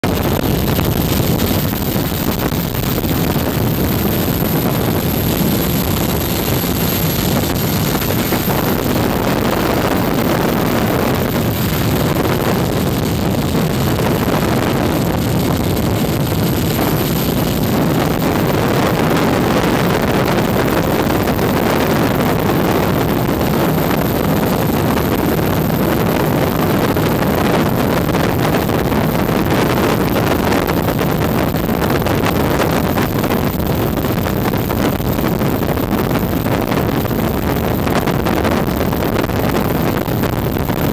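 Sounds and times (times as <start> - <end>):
faint high whine: 0.0 - 40.9
wind buffeting microphone: 0.0 - 40.9
helicopter engine: 0.2 - 13.0.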